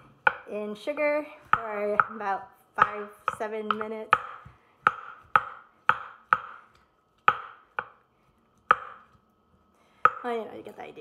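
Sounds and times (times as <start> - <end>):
pestle knocking in mortar: 2.8 - 8.0, 8.6 - 9.2.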